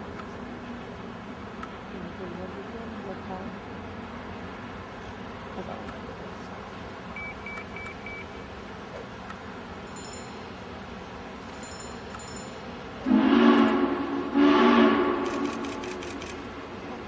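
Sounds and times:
steam locomotive chime whistle: 11.6s - 15.5s.

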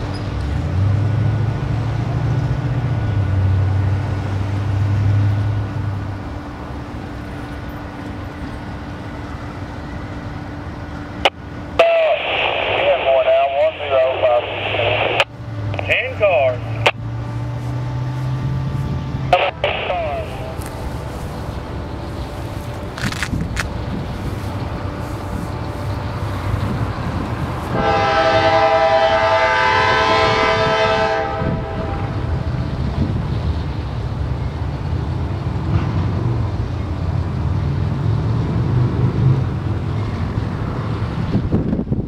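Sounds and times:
train rumbling: 0.0s - 42.0s
locomotive air horn blast: 27.3s - 32.5s.

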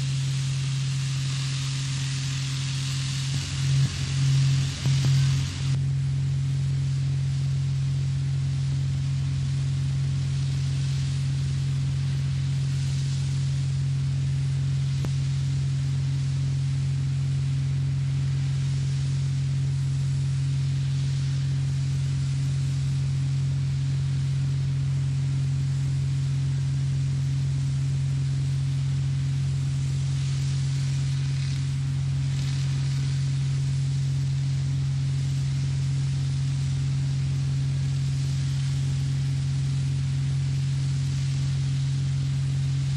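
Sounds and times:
faint high hiss: 0.0s - 5.8s, 28.2s - 42.9s
water-blasting equipment drone: 0.0s - 5.8s, 28.6s - 42.9s.

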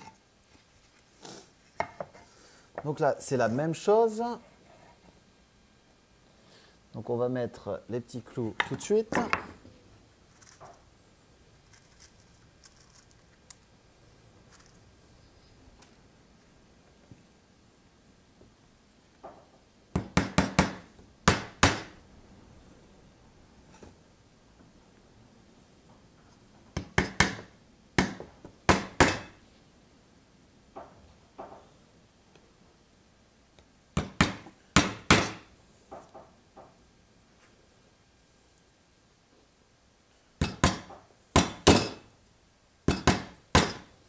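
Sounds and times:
hammer striking nails into wood: 20.0s - 21.9s, 26.8s - 29.3s, 34.0s - 35.5s, 40.4s - 42.0s, 42.9s - 43.9s.

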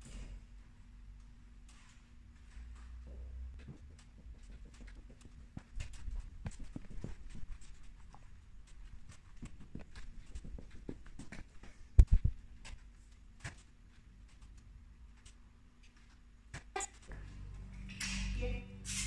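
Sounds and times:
footsteps on concrete: 2.6s - 15.4s.

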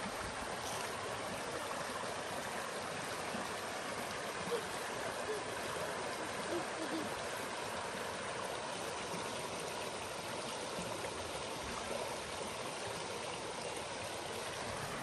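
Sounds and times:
flowing water rushing: 0.0s - 15.0s.

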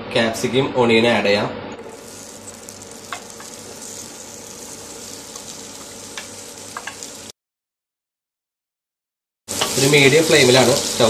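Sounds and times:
vegetables sizzling in oil: 1.8s - 7.4s, 9.5s - 11.0s.

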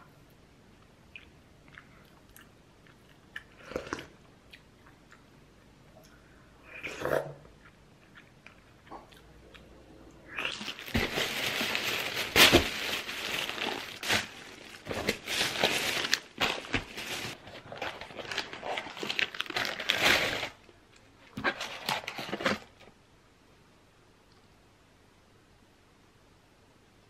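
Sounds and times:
paper and plastic packaging crinkling: 10.4s - 22.9s.

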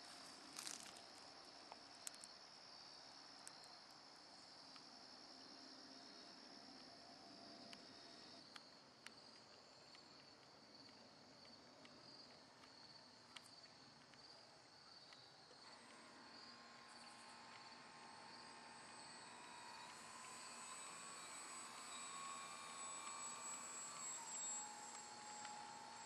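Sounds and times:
insects chirping: 0.0s - 26.0s
model plane motor whine: 15.6s - 26.0s.

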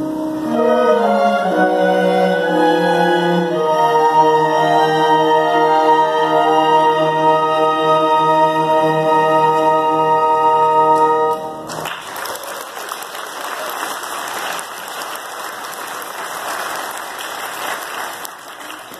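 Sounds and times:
string orchestra holding chord: 0.0s - 11.8s
audience applauding: 11.7s - 18.9s.

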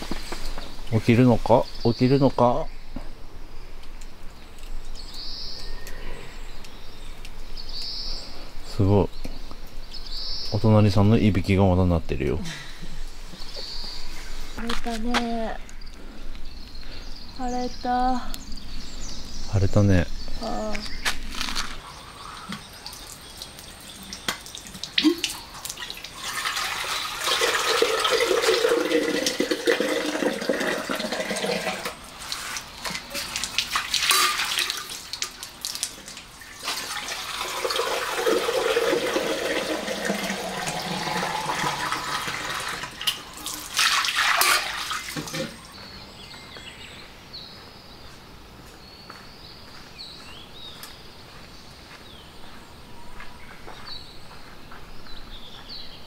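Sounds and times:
water running into metal kettle: 26.1s - 32.0s, 33.5s - 35.2s, 36.6s - 45.6s.

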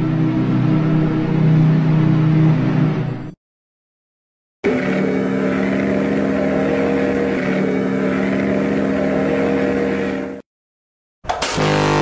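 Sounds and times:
ship's horn blast: 4.6s - 10.4s, 11.5s - 12.0s.

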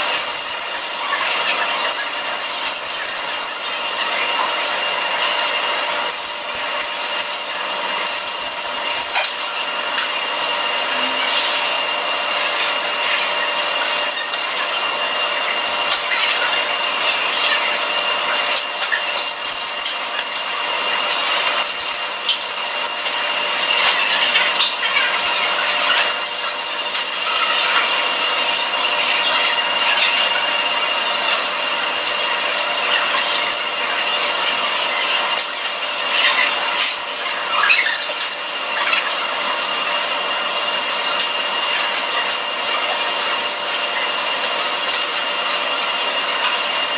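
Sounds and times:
crackles and rubbing: 0.0s - 9.4s, 18.4s - 20.4s, 21.0s - 27.9s
high steady whine: 0.0s - 31.9s.

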